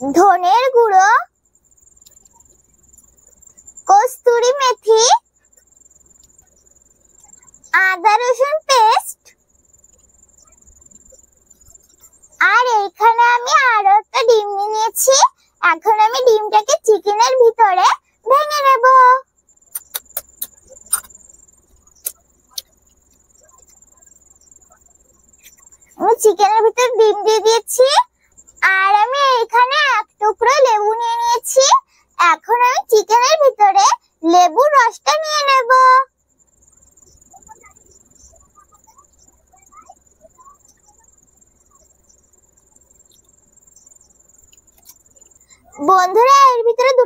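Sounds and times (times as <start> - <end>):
high-pitched insect trill: 0.0 - 47.0
lemon wedge squelching: 19.8 - 21.1.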